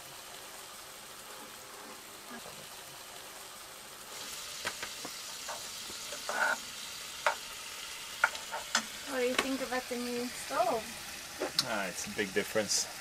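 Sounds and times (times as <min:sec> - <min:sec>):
vegetables sizzling in a pan: 0:00.0 - 0:13.0
spatula scraping and tapping pan: 0:04.6 - 0:07.5, 0:08.1 - 0:09.6.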